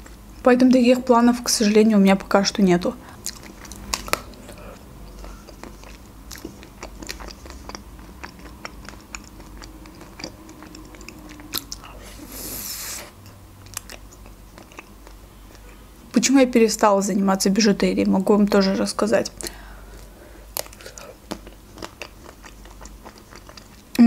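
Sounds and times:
wet mouth sounds: 3.1 - 15.8, 19.4 - 24.0.

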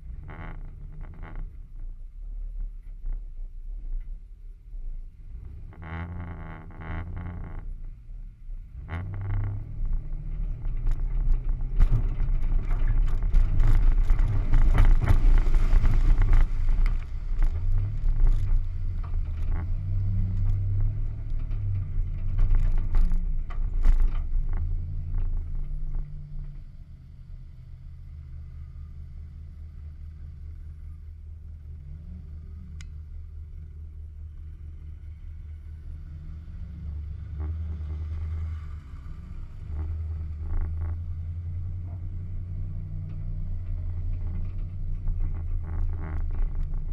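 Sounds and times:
knocks and rattles: 8.8 - 26.3.

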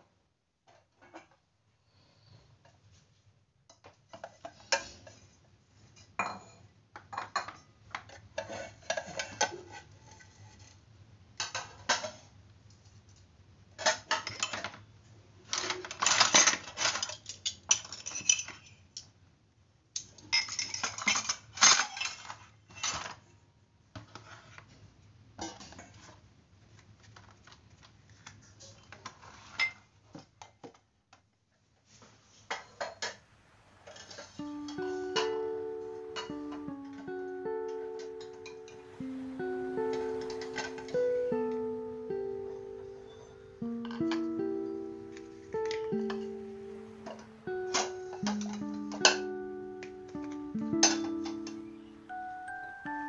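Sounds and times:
faint low hum: 33.0 - 53.0.

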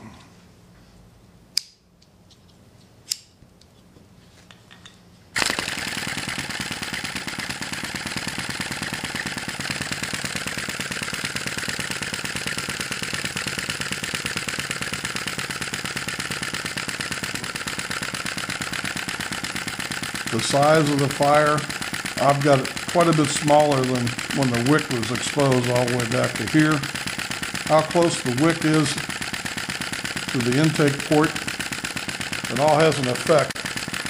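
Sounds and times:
sharp click: 1.5 - 3.4
model engine clattering: 5.4 - 34.0.

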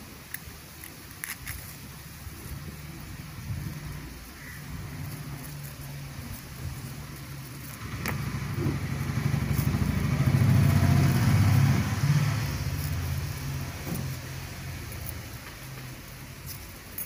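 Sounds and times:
vehicle engine passing by: 4.7 - 16.4.

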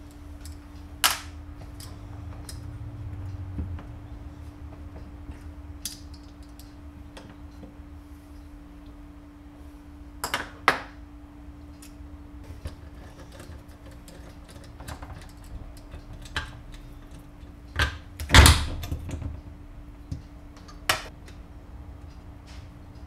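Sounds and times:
low hum: 0.0 - 23.0
tools knocking and clicking: 11.8 - 19.4.

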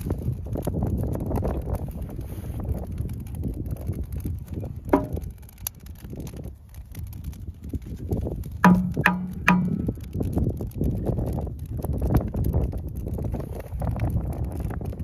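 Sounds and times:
low wind rumble on microphone: 0.0 - 15.0
firewood clunking in steel ring: 4.9 - 5.3, 8.6 - 10.0.

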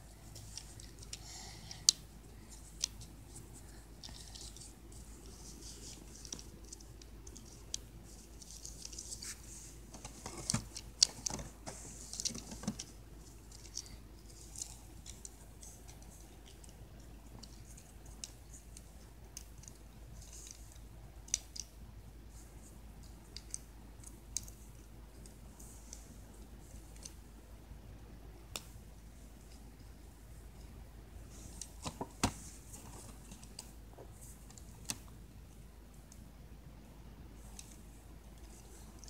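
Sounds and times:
plastic toy and box handling: 4.1 - 12.9.

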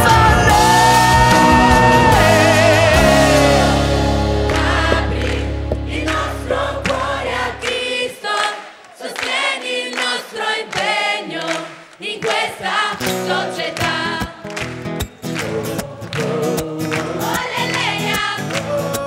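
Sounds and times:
low bass accompaniment: 0.0 - 7.7
choir singing gospel: 0.0 - 14.4, 15.2 - 19.0.

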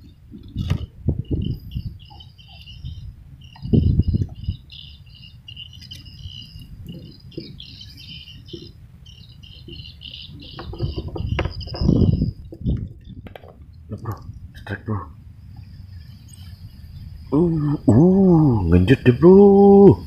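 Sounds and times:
high-pitched wildlife chirping: 0.0 - 13.3, 14.0 - 20.0.

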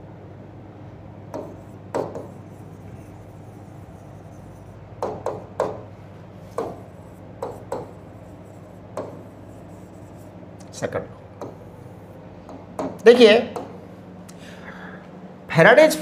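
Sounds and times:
pen tapping on glass screen: 1.3 - 2.4, 5.0 - 5.9, 6.5 - 8.0, 8.9 - 9.3, 11.4 - 11.6, 12.5 - 13.0.

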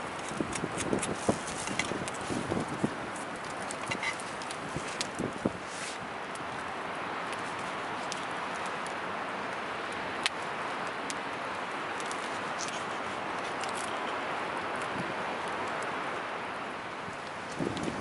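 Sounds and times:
campfire crackling: 0.0 - 18.0.

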